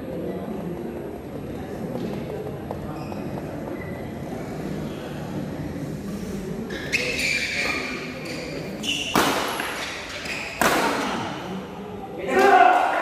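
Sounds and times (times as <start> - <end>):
racket striking shuttlecock: 9.1 - 11.3.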